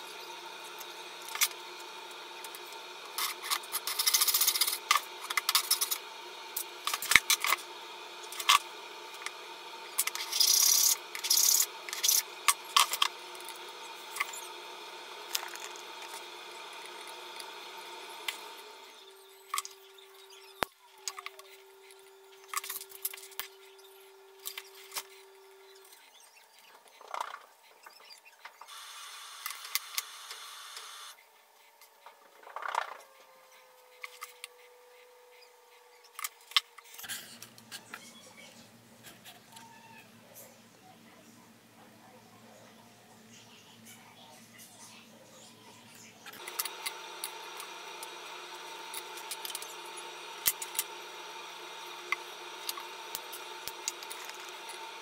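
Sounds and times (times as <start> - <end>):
gas torch flame hissing: 0.0 - 20.1, 46.3 - 55.0.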